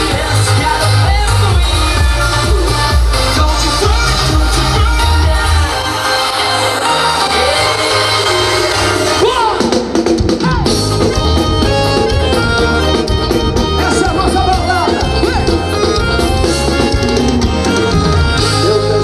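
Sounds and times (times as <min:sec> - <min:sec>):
drum kit beat: 0:00.0 - 0:05.7, 0:07.4 - 0:19.0
person singing: 0:00.0 - 0:09.8, 0:17.8 - 0:19.0
live band music: 0:00.0 - 0:19.0.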